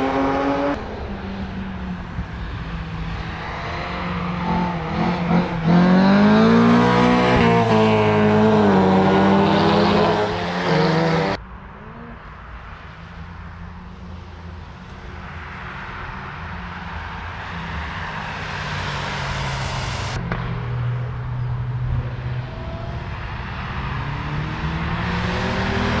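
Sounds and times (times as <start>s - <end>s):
race cars engine and tyre noise: 0.0s - 26.0s
car engine accelerating: 3.1s - 12.2s, 18.0s - 26.0s.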